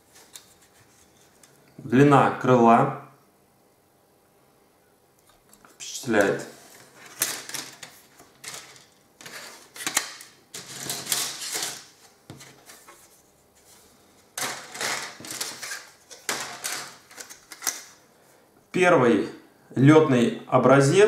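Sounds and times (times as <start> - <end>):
plastic parts clattering and rustling: 6.8 - 12.9, 14.4 - 18.0.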